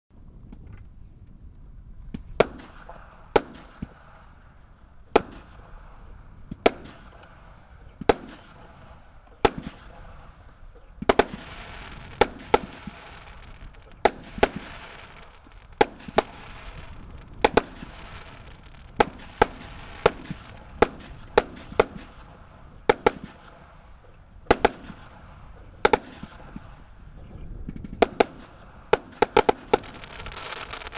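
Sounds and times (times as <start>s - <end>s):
firework reports: 8.0s - 23.7s, 24.5s - 30.9s
crackling hiss of firework bursts: 11.0s - 22.3s, 28.0s - 30.9s.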